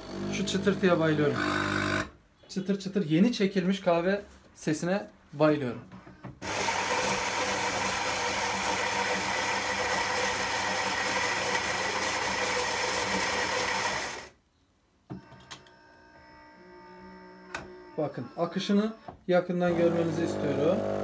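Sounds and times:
coffee grinder grinding beans: 0:06.4 - 0:14.3, 0:19.7 - 0:21.0.

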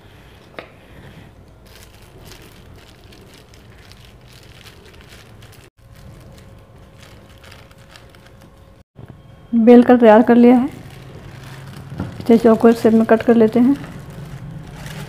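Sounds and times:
plastic sheet crinkling: 0:01.6 - 0:08.8, 0:10.6 - 0:15.0.

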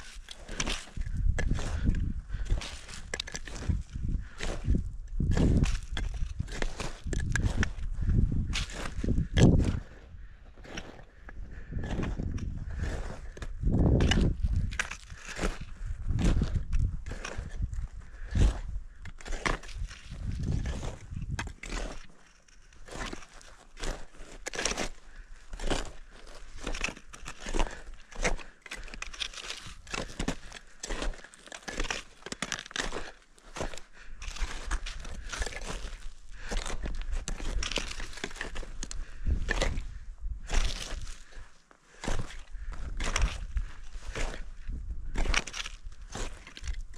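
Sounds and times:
footsteps crunching on snow: 0:05.3 - 0:09.9, 0:19.2 - 0:39.9.

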